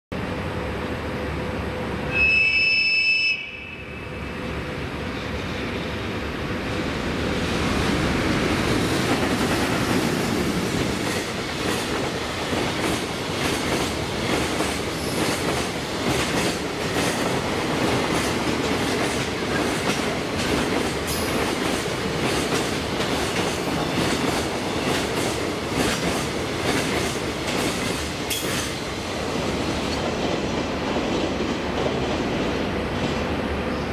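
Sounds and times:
high train horn blast: 0:02.0 - 0:04.4
train wagons rushing past: 0:04.0 - 0:33.9.

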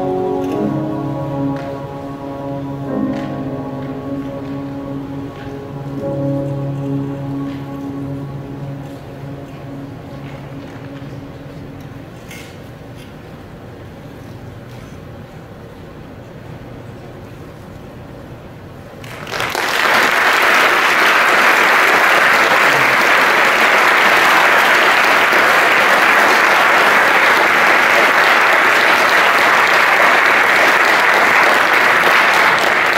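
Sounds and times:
audience applauding: 0:19.0 - 0:32.9.

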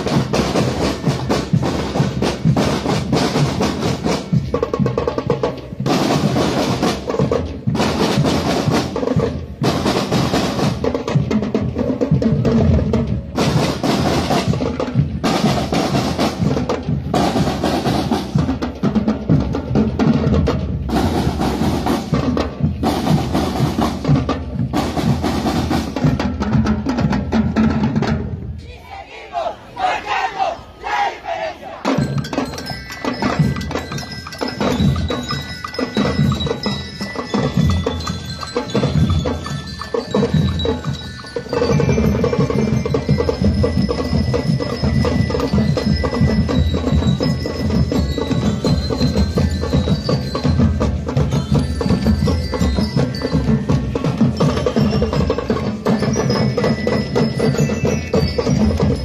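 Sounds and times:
snare and bass drums: 0:00.0 - 0:28.6, 0:31.8 - 0:59.0
metal bells melody: 0:31.8 - 0:59.0.

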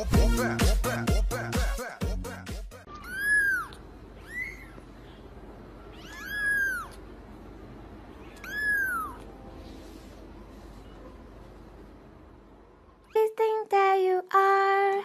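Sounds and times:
kitten mewing: 0:02.9 - 0:04.9, 0:05.9 - 0:07.1, 0:08.2 - 0:09.3.

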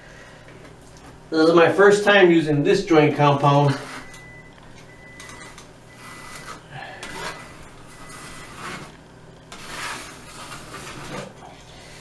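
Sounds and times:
drywall knife scraping wall: 0:06.0 - 0:12.0.

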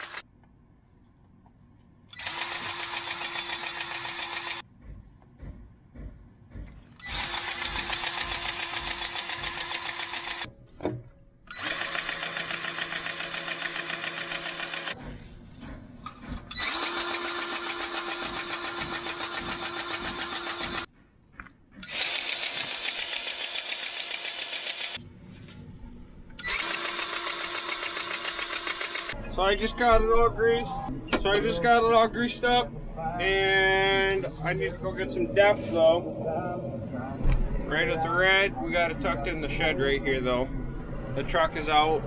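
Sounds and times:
battery grease gun pumping: 0:00.0 - 0:00.2, 0:02.2 - 0:04.6, 0:07.0 - 0:10.5, 0:11.5 - 0:15.0, 0:16.5 - 0:20.9, 0:21.8 - 0:25.0, 0:26.4 - 0:29.2.

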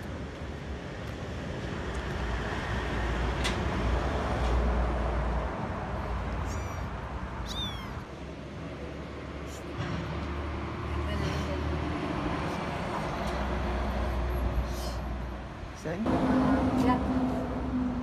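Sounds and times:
vehicle passing: 0:01.3 - 0:18.0
kitten mewing: 0:06.4 - 0:08.1.

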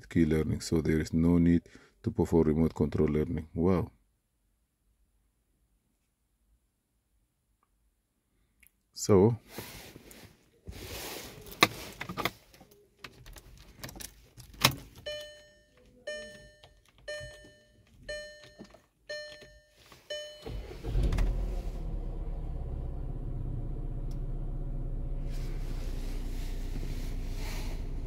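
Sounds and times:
keys rattling: 0:11.4 - 0:20.1
dashboard warning chime: 0:15.0 - 0:21.0
car engine starting and idling: 0:20.1 - 0:28.0.

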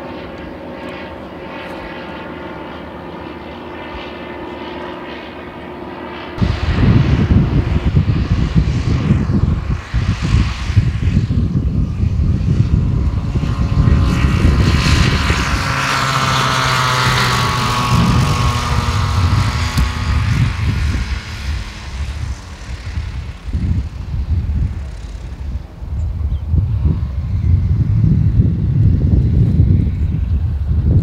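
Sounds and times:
ultralight engine and propeller buzzing: 0:00.0 - 0:31.0
wind buffeting microphone: 0:06.4 - 0:31.0.

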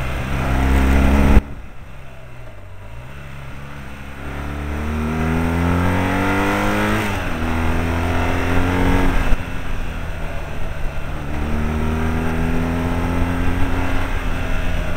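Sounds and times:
wind rushing: 0:00.0 - 0:02.0
motorcycle engine accelerating: 0:00.0 - 0:14.9.

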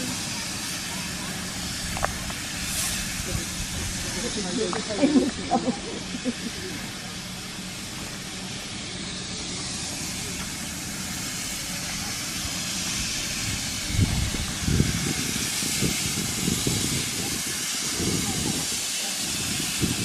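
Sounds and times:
steam hissing from a locomotive: 0:00.0 - 0:20.0
low rumbles: 0:01.2 - 0:18.6.

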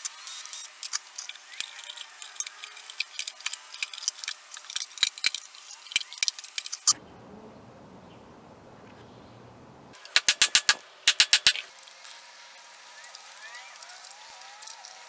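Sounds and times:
metal screws clicking and clinking: 0:00.7 - 0:07.0, 0:10.0 - 0:11.7
faint low rumble: 0:07.0 - 0:10.0.

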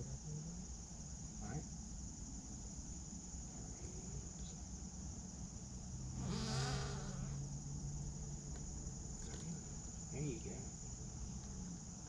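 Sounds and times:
chorus of swamp insects: 0:00.0 - 0:12.0
flying insect buzzing past: 0:05.9 - 0:07.8.

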